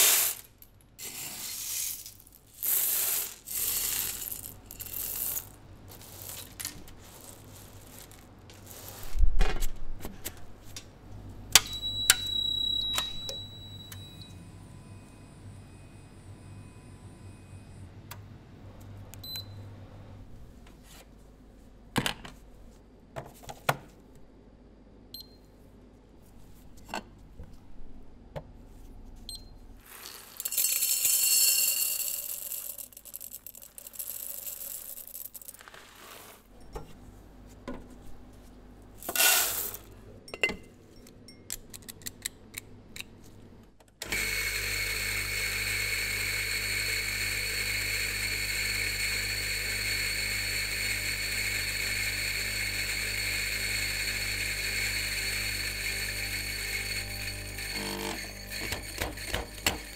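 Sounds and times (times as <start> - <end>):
coffee beans rattling into cup: 1.5 - 9.2, 29.8 - 36.3, 39.0 - 39.8
coffee grinder motor running: 44.1 - 59.9.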